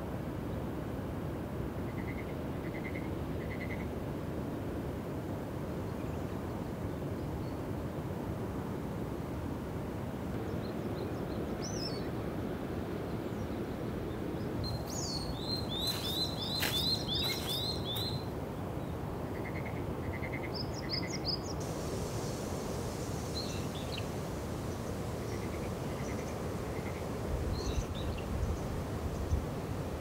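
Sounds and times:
low outdoor background noise: 0:00.0 - 0:30.0
small birds chirping: 0:14.4 - 0:21.6, 0:22.2 - 0:29.5.

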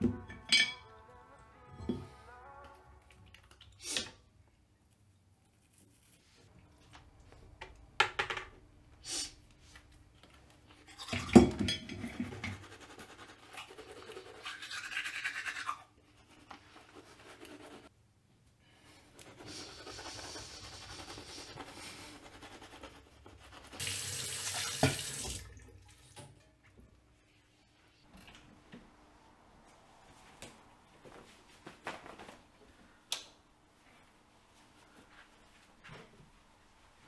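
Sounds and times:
toothbrush scrubbing teeth: 0:12.0 - 0:17.9, 0:19.2 - 0:24.0
tap running and water splashing: 0:23.8 - 0:26.4.

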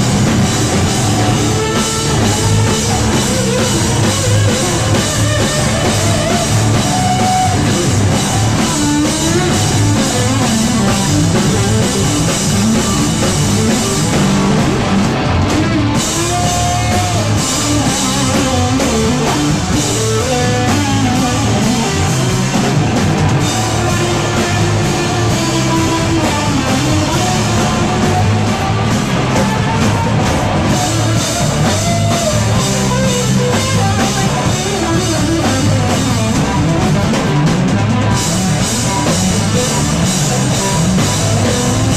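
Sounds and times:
drum kit: 0:00.0 - 0:41.9
electric guitar: 0:00.0 - 0:41.9.

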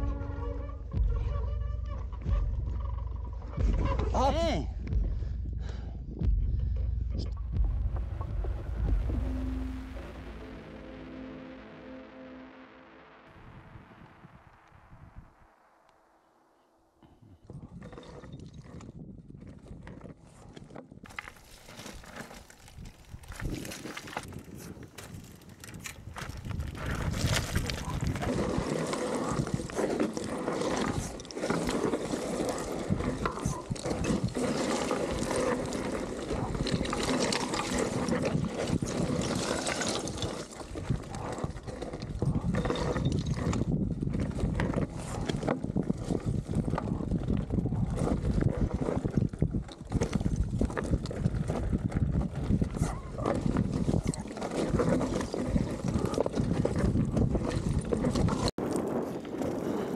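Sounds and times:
stones clattering: 0:21.1 - 0:40.8
bike tyres crunching over shale: 0:21.1 - 0:59.9.

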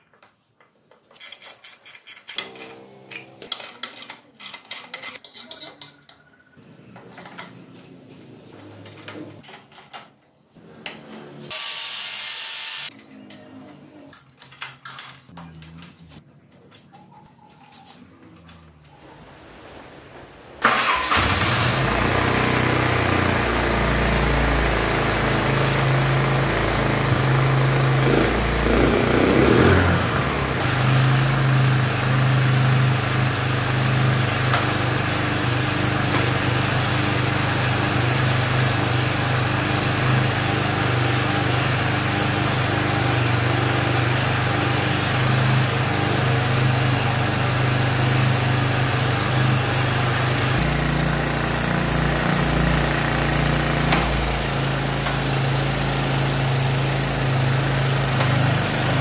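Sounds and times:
small engine starting and idling: 0:20.6 - 0:59.0.

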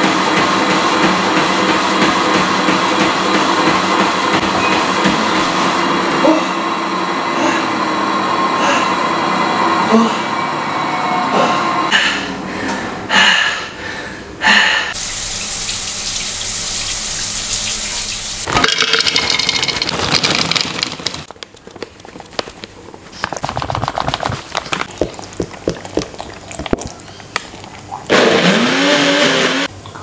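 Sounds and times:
shower spraying water: 0:15.0 - 0:18.5.

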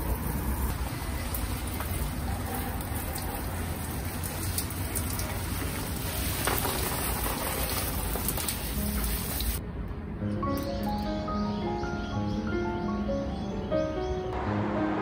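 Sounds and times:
hose spraying water on leaves: 0:00.0 - 0:09.6.

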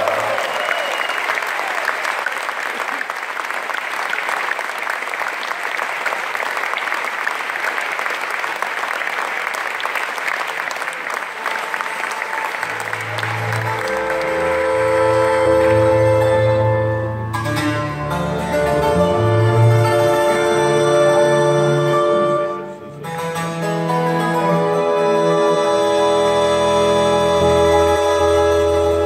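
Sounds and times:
audience applauding: 0:00.0 - 0:17.2
folk band playing: 0:11.4 - 0:29.0.

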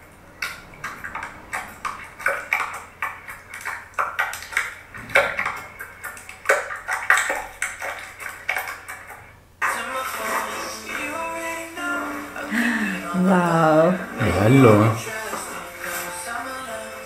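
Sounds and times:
wet clicks and pops: 0:00.4 - 0:09.2.

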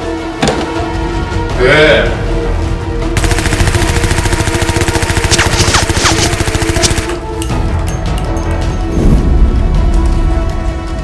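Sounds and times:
music: 0:00.0 - 0:11.0
rapid automatic gunfire: 0:03.2 - 0:07.2.

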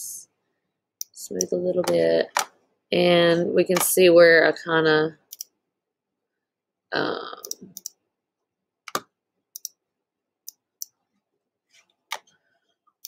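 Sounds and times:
computer mouse clicks: 0:05.3 - 0:05.5, 0:07.4 - 0:08.0, 0:08.9 - 0:09.8.

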